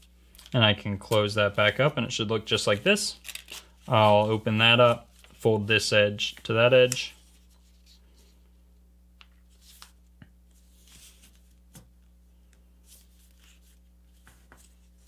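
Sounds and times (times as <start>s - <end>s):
low steady hum: 0.0s - 15.0s
paper rustling and crackling: 2.6s - 8.0s.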